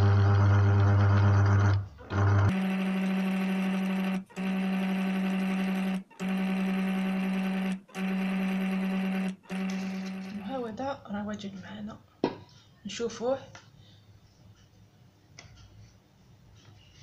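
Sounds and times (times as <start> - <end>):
food chopper motor running: 0.0 - 10.4.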